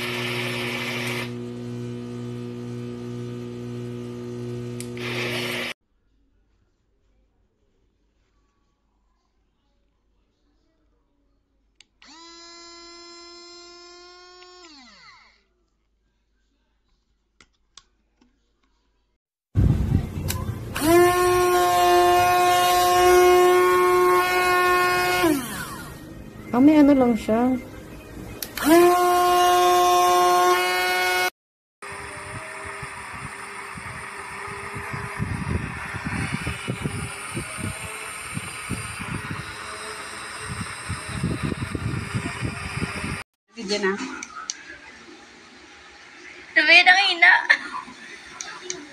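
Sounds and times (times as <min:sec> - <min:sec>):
portable blender motor whining: 0:00.0 - 0:05.8, 0:12.0 - 0:15.3, 0:20.6 - 0:26.1, 0:28.4 - 0:43.2.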